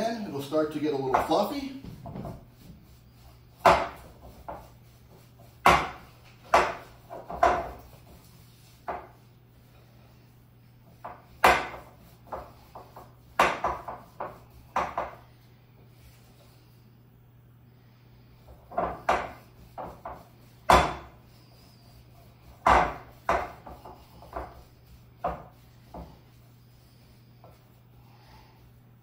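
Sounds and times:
soft stirring: 0.0 - 16.9
faint steady hum: 0.0 - 29.0.

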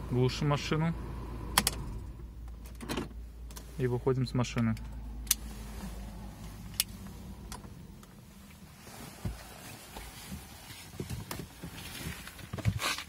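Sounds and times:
rustling: 5.4 - 13.0.

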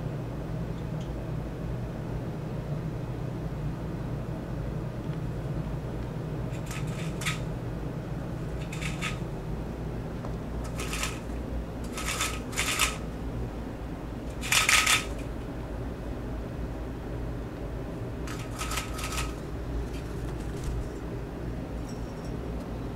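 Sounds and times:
steady low hum: 0.0 - 22.9
bird wings rustling against blinds: 6.5 - 7.5, 8.4 - 9.3, 10.6 - 13.1, 14.3 - 15.3, 18.3 - 21.0.

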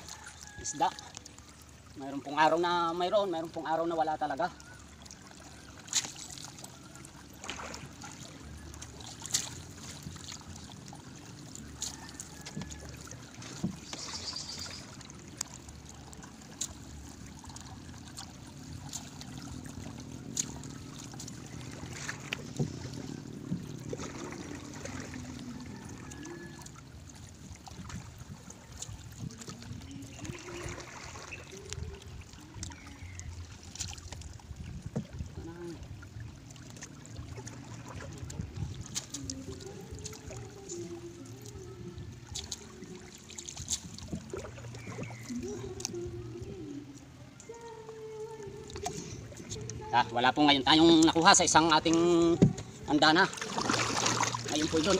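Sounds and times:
light knocks against hull: 52.4 - 52.8.

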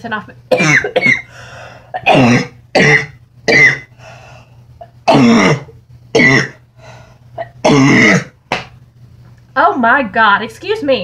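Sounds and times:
woman coughing: 0.5 - 1.3, 1.9 - 3.9, 5.0 - 6.6, 7.4 - 8.3.

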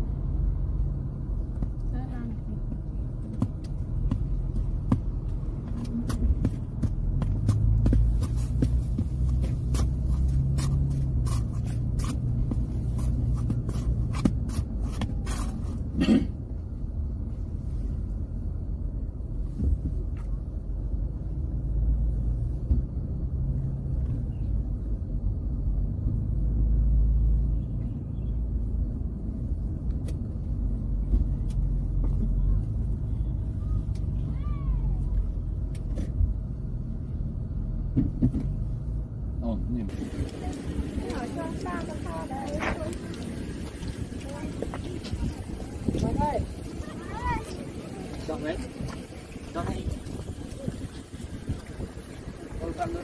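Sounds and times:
wind on microphone: 39.9 - 53.0.

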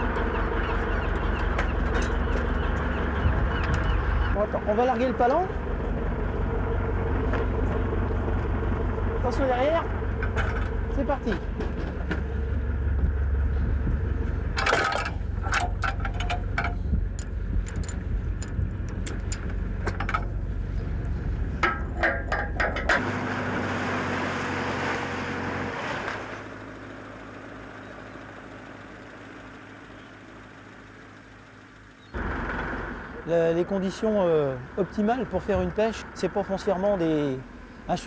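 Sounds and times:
boat engine rumbling: 0.0 - 38.0
sharp knocks and clanks: 21.6 - 23.1.

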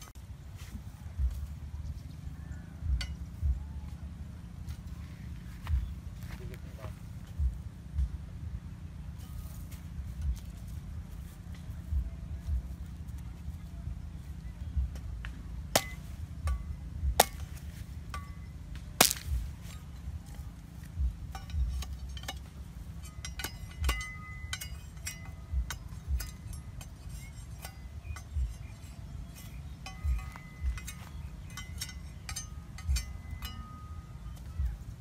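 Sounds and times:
machete chopping bamboo: 15.7 - 16.2, 17.1 - 17.8, 18.7 - 19.5.

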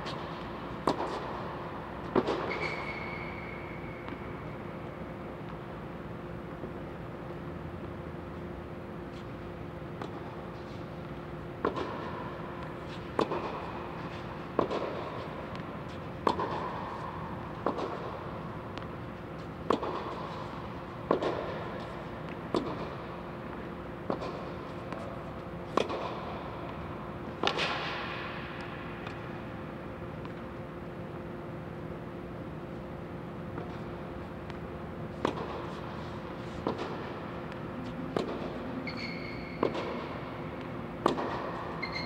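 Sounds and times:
racket hitting tennis ball: 0.0 - 4.3, 11.6 - 23.1, 24.0 - 29.3, 33.5 - 42.0
steady low hum: 0.0 - 42.0.

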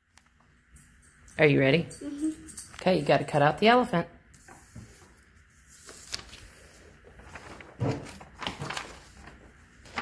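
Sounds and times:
paper crinkling and rustling: 4.4 - 10.0.

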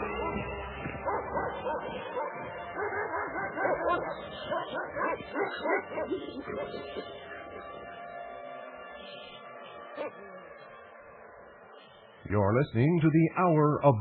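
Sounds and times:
dog barking and yipping: 0.0 - 7.7.

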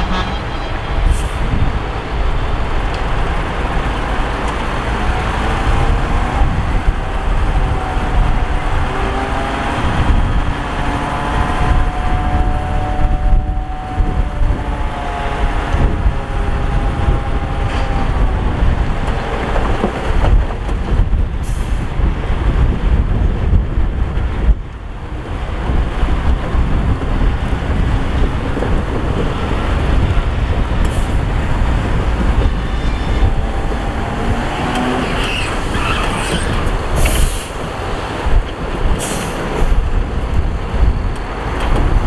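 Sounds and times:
diesel engine rumbling: 0.0 - 42.0.

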